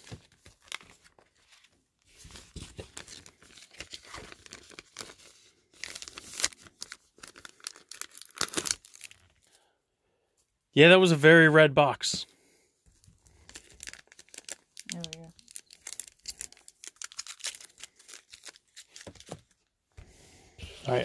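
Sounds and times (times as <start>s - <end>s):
plastic sleeve crinkling: 0.0s - 9.5s, 13.0s - 19.6s.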